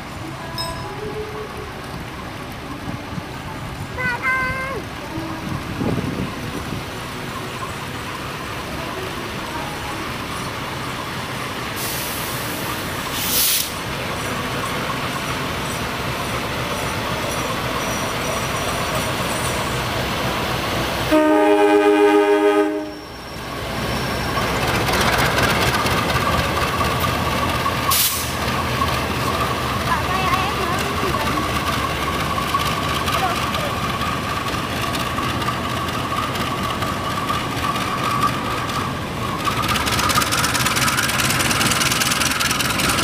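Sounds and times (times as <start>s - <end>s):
freight train rumbling past: 0.0s - 43.0s
locomotive horn blast: 21.1s - 23.2s.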